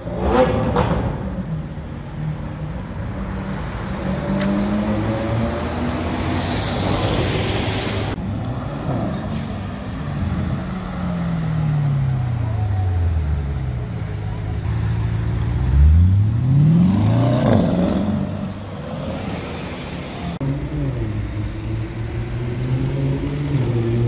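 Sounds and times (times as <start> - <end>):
street traffic engines: 0.0 - 24.0
sports car engine passing: 9.8 - 24.0.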